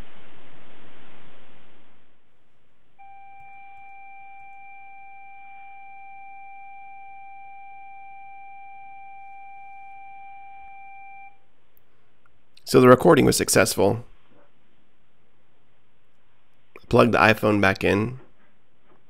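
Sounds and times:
steady beep from small speaker: 3.0 - 11.4.

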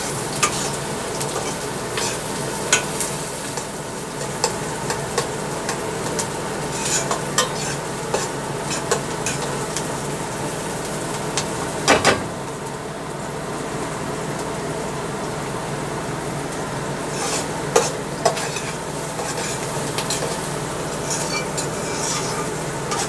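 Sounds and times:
onions sizzling in oil: 0.0 - 23.0
metal spoon scraping pot: 6.7 - 9.0, 17.1 - 20.4, 21.0 - 23.0.

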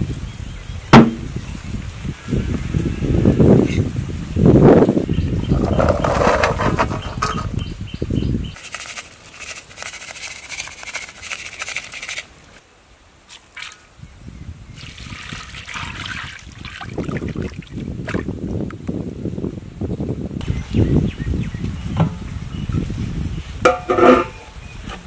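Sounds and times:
wind buffeting microphone: 0.0 - 8.6, 14.0 - 25.0.

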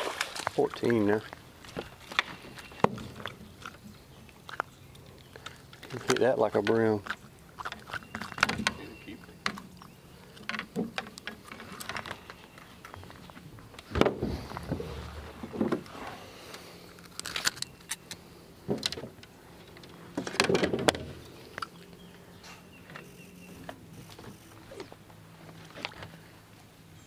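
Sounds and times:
fish handling clicks and rattles: 0.2 - 21.9.

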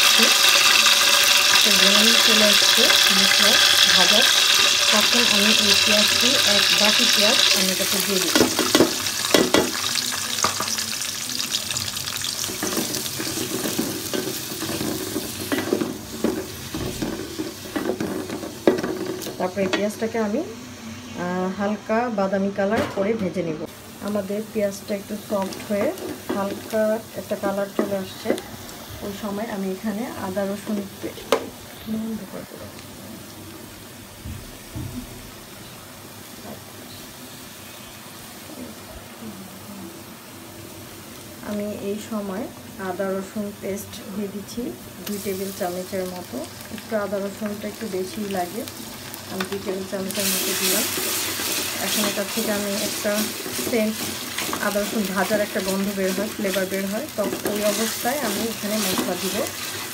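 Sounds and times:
onions sizzling in oil: 0.0 - 22.7, 23.3 - 59.9
wooden spatula scraping pot: 50.2 - 56.5.

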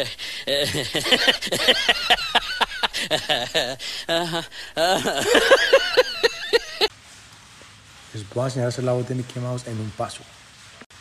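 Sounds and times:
man laughing hard: 0.0 - 6.9.

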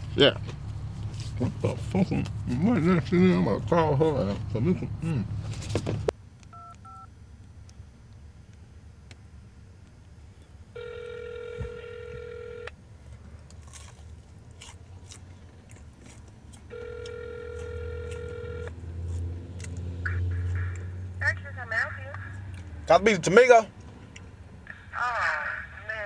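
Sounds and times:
telephone ringback tone: 10.8 - 12.7, 16.7 - 18.7.

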